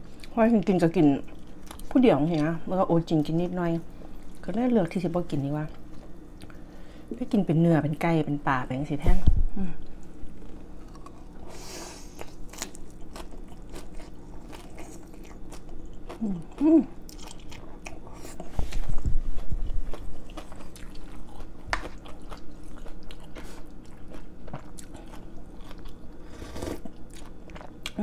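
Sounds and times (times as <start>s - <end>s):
slurping and chewing noodle soup: 10.8s - 28.0s.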